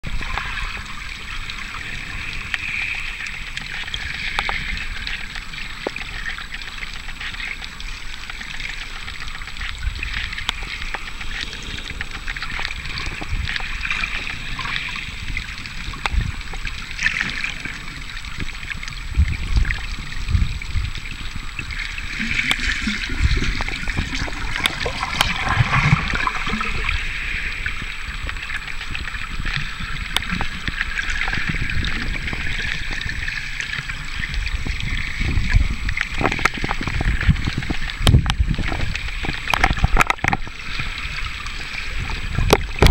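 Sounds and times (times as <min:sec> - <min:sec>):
underwater water hiss: 0:00.2 - 0:06.8, 0:07.4 - 0:18.8, 0:19.4 - 0:39.9
clicks and crackles: 0:00.2 - 0:20.4, 0:21.2 - 0:41.1, 0:41.7 - 0:42.9
water thumping against camera: 0:18.4 - 0:27.0, 0:34.3 - 0:40.6, 0:42.0 - 0:42.9.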